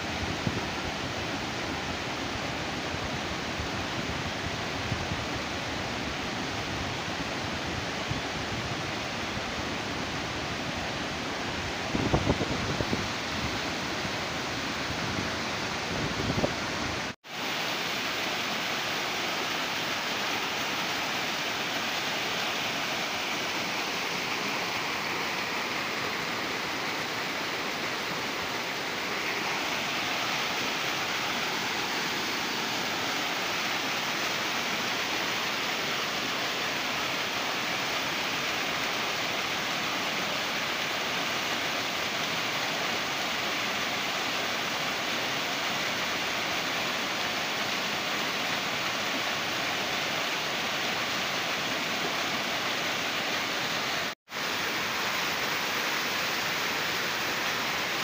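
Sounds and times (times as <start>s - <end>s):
waterfall over boulders: 0.0s - 58.0s.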